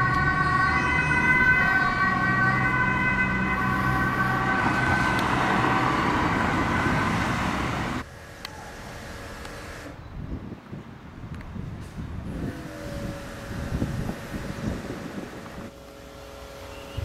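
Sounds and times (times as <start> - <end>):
ambulance two-tone siren: 0.0 - 8.0
road traffic noise: 0.0 - 17.0.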